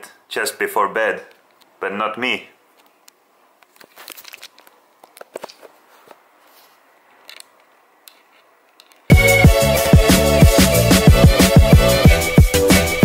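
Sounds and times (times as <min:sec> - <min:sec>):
faint crackles and crunches: 0:02.8 - 0:08.4
upbeat music with strong beat: 0:09.1 - 0:13.0.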